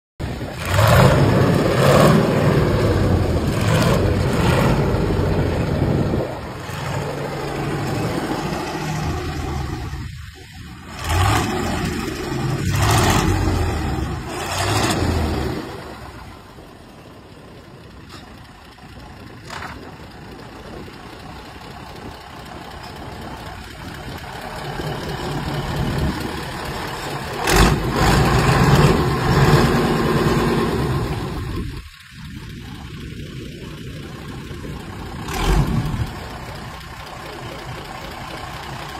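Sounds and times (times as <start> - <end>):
diesel boat engine running hard: 0.2 - 38.9.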